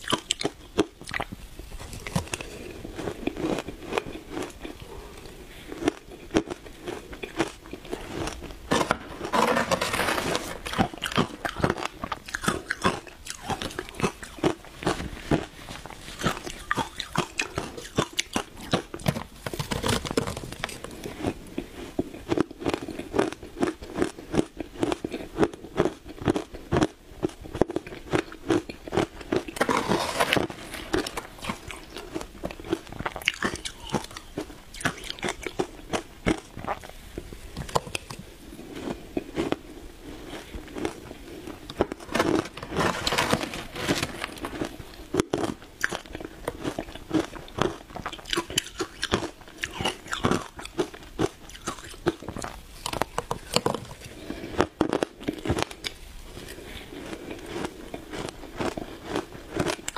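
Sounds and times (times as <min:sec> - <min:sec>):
ice crunching between teeth: 0:05.8 - 0:36.9, 0:40.2 - 0:59.9.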